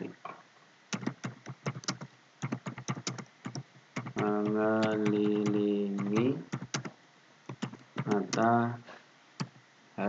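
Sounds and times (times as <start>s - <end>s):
keyboard typing: 0.9s - 6.9s, 7.5s - 8.5s, 9.4s - 9.6s.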